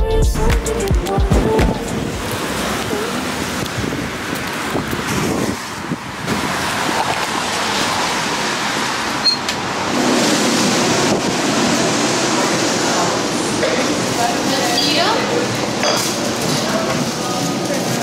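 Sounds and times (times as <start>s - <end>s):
traffic rush: 0.4s - 18.0s
wind buffeting microphone: 1.3s - 13.2s.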